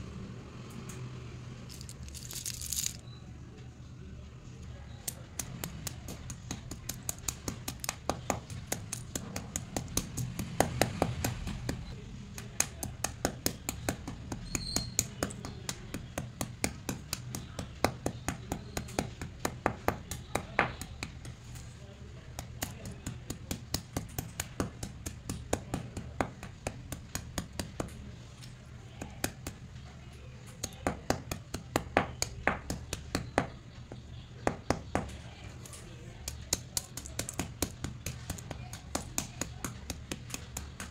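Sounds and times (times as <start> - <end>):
pencils cracking under stone pounder: 1.7 - 3.0, 5.0 - 21.7, 34.4 - 40.9.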